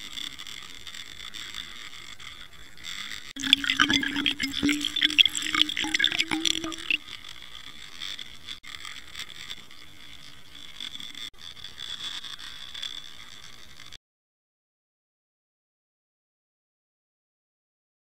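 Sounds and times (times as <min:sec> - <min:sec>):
water rushing past underwater camera: 0:03.4 - 0:07.0
crackling bubbles and splashes: 0:03.4 - 0:07.1.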